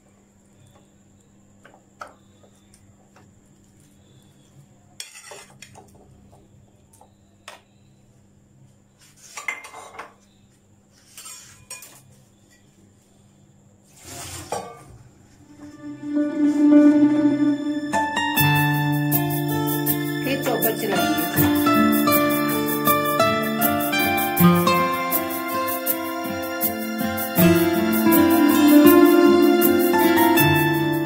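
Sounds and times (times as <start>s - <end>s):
clinks of glass and plastic: 9.4s - 10.2s.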